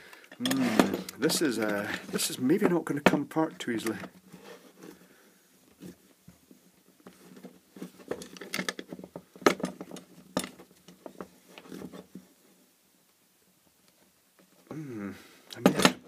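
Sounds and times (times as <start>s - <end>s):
plastic housing clicking and creaking: 8.0s - 11.8s.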